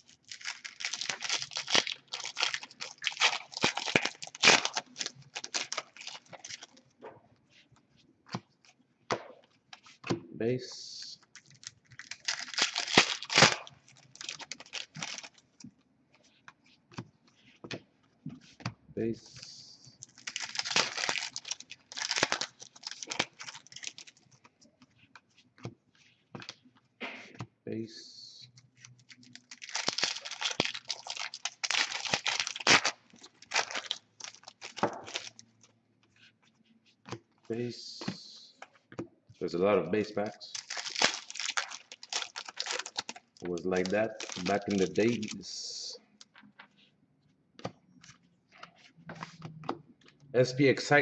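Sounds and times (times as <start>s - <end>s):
wrapper ripping: 0.0s - 6.8s, 11.4s - 15.4s, 20.0s - 24.2s, 29.0s - 35.4s, 40.3s - 45.4s
wrapper crinkling: 0.0s - 6.9s, 11.2s - 15.6s, 20.0s - 24.4s, 28.8s - 35.7s, 40.2s - 45.4s.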